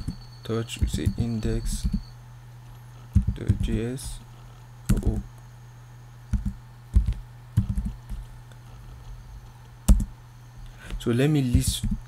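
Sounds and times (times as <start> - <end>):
computer keyboard typing: 0.0 - 0.2, 0.8 - 2.1, 3.1 - 4.2, 4.9 - 5.3, 6.3 - 8.3, 9.9 - 10.1, 11.5 - 12.0
steady low hum: 0.0 - 12.0.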